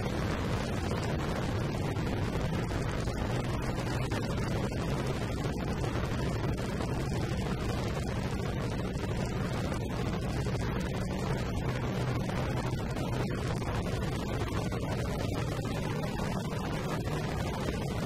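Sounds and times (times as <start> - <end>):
wind noise on microphone: 0.0 - 18.0.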